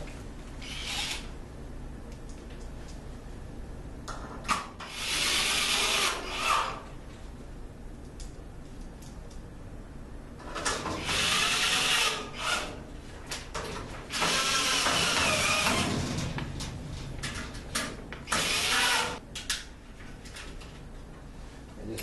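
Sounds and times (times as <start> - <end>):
cordless drill driving screws: 0.6 - 1.3, 11.0 - 12.7, 14.1 - 15.9, 18.3 - 19.2.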